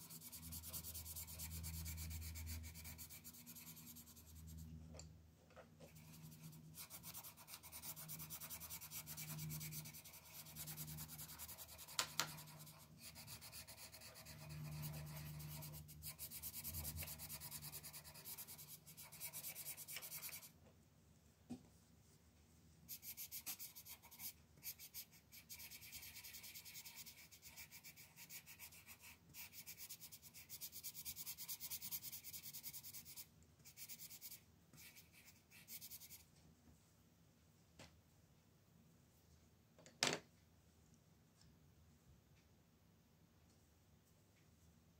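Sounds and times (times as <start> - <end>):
pencil scratching on paper: 0.0 - 4.7, 5.9 - 20.5, 22.9 - 36.2.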